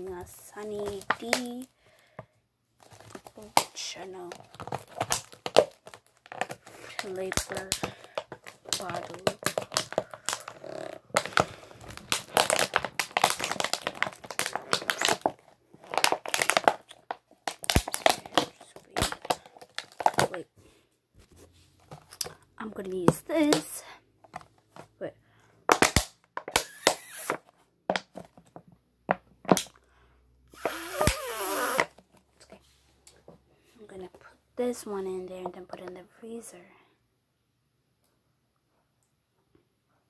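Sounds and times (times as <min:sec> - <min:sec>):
plastic crinkling: 0:00.0 - 0:02.1, 0:02.8 - 0:20.5, 0:21.3 - 0:24.9, 0:25.7 - 0:28.7
plastic bottle crackling: 0:00.0 - 0:02.2, 0:02.8 - 0:20.5, 0:21.8 - 0:25.1, 0:25.7 - 0:29.8, 0:30.5 - 0:32.6.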